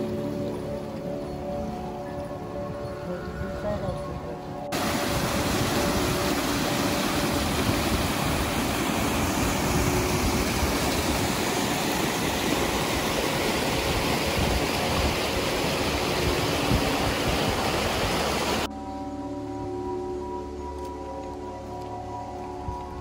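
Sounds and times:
fast-flowing river rushing: 0:04.4 - 0:18.7.

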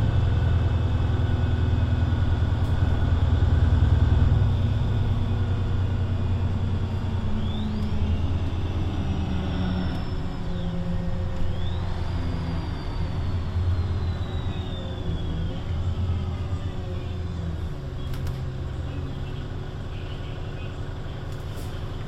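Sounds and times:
bus engine droning: 0:00.0 - 0:22.0.

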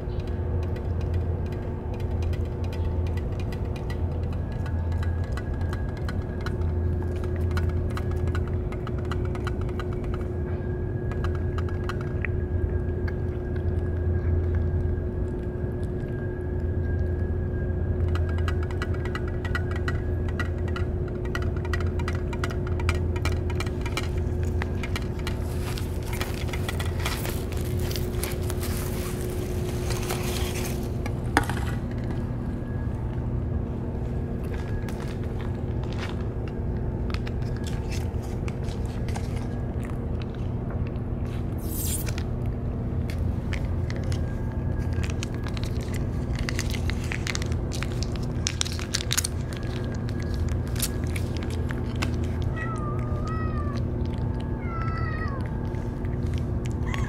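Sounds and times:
cat eating from metal dish: 0:00.0 - 0:57.0
low background hum: 0:00.0 - 0:57.0
cat meowing: 0:52.2 - 0:55.6.

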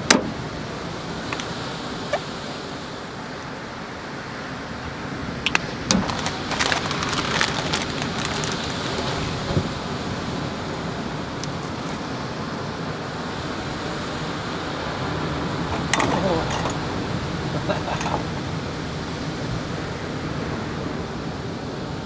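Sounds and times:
food packaging clicking: 0:05.5 - 0:09.4
plastic bag crinkling: 0:05.6 - 0:09.8.

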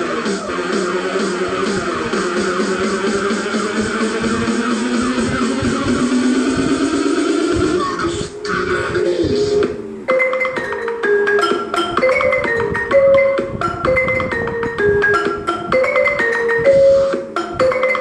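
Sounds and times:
marimba played with mallets: 0:10.1 - 0:18.0.

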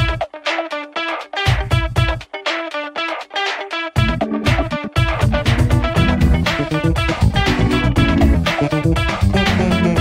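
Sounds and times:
music with guitar bass and beat: 0:00.0 - 0:10.0.

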